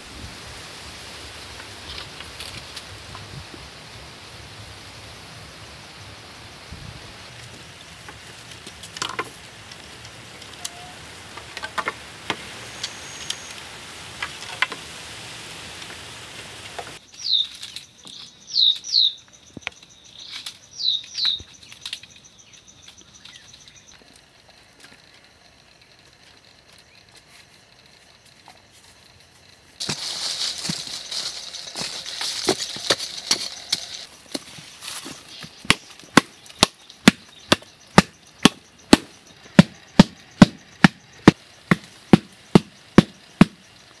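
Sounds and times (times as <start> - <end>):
bird chirping: 17.0 - 24.0, 35.1 - 39.5
rustling: 24.0 - 37.2
sticks and poles clicking: 29.8 - 39.0
digging into soil: 29.8 - 40.5.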